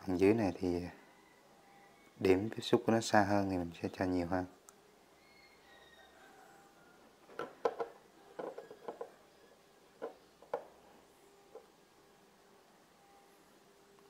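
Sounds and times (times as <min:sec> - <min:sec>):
small objects tapping on wood: 0:07.3 - 0:09.1, 0:10.0 - 0:10.7.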